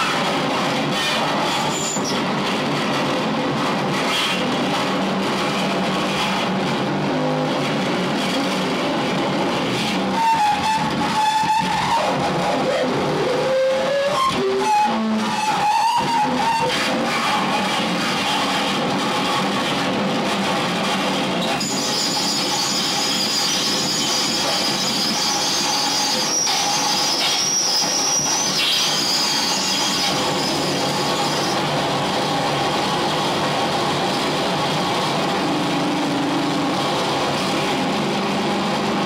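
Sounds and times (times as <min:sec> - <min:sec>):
continuous distorted noise: 0:00.0 - 0:39.0
squealing sliding tones: 0:00.9 - 0:02.2, 0:10.1 - 0:18.5.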